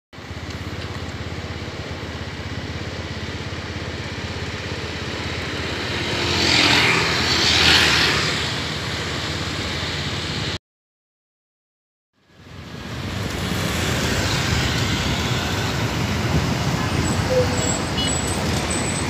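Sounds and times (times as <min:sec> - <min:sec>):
traffic rumble: 0:00.2 - 0:10.6, 0:12.2 - 0:19.0
vehicle passing close: 0:05.2 - 0:08.8, 0:12.8 - 0:19.0.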